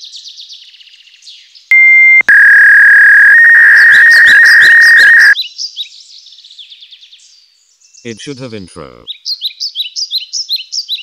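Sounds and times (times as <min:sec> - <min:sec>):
birds chirping: 0:01.7 - 0:05.4
electronic beep tones: 0:01.7 - 0:05.4.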